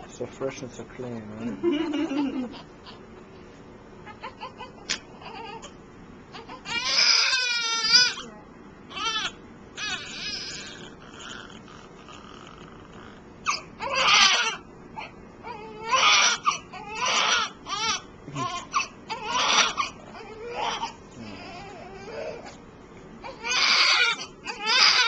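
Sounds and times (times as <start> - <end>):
baby crying: 4.1 - 5.7, 6.3 - 8.3, 8.9 - 11.8, 13.4 - 22.6, 23.2 - 25.0.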